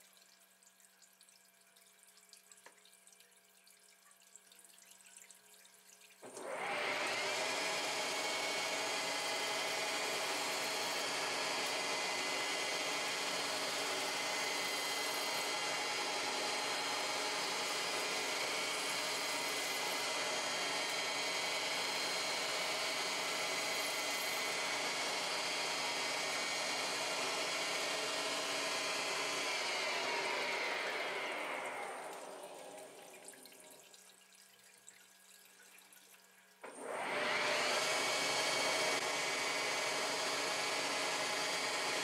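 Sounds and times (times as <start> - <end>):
lathe spindle whining: 6.4 - 32.6, 36.8 - 42.0.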